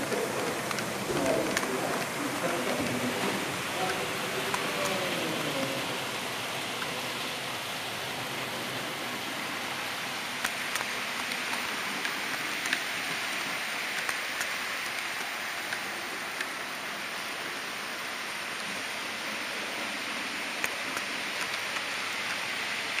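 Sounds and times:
wheels clicking on rails: 0.0 - 7.2, 8.4 - 23.0
model train rushing: 0.0 - 23.0.

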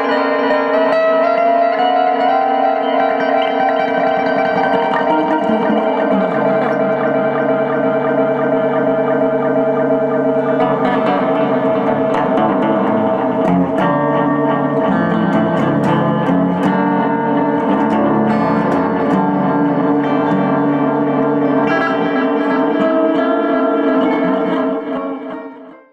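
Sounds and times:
plucked string notes with echo: 0.0 - 25.9
sustained drone: 3.6 - 16.3.

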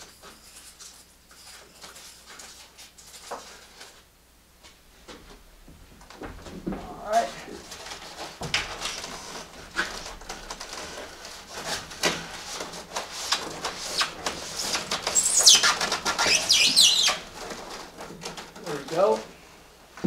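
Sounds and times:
electrical cable rustling and scraping: 0.0 - 20.0
high squeaky rubbing: 13.0 - 18.0.

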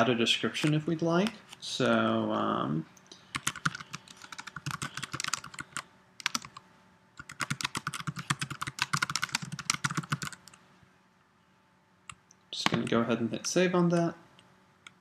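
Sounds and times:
keyboard typing: 3.3 - 6.6, 7.2 - 10.6.

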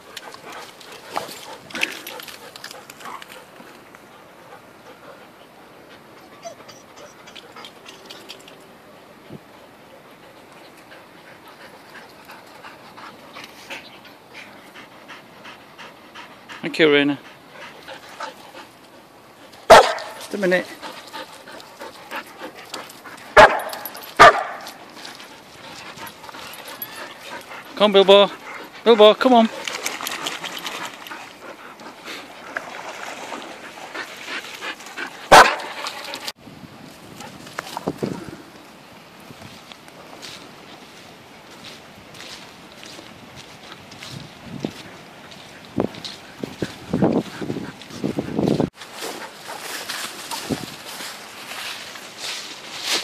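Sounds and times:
dog whining and yipping: 6.1 - 8.2
dog panting quickly: 9.6 - 24.4, 25.0 - 32.6, 33.2 - 36.3, 44.8 - 49.9
loud dog bark: 19.7 - 20.2, 23.4 - 24.6, 35.3 - 35.7.

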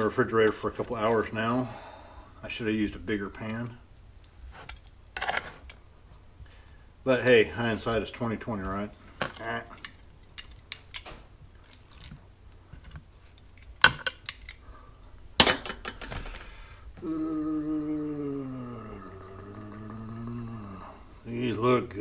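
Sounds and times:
man humming low note: 17.0 - 21.9.

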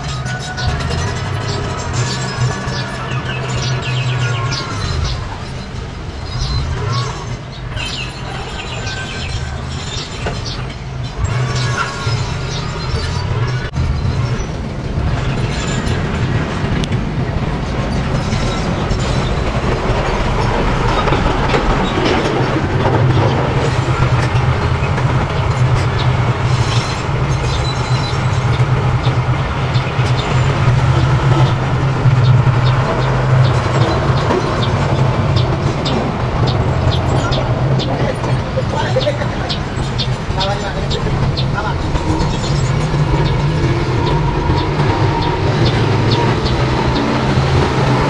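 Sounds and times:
bulldozer diesel engine: 0.0 - 48.0
steel tracks clattering: 0.0 - 48.0.

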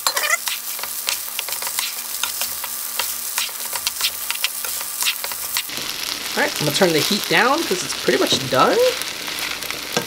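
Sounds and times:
spatula scraping skillet: 0.0 - 7.2
rice sizzling in skillet: 0.0 - 10.0.

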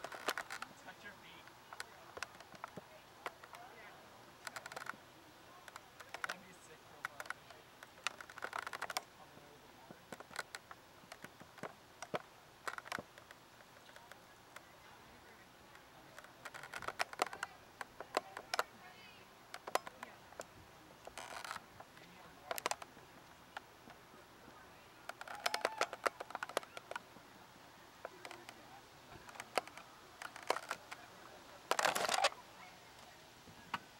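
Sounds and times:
faint voices: 0.0 - 33.9.

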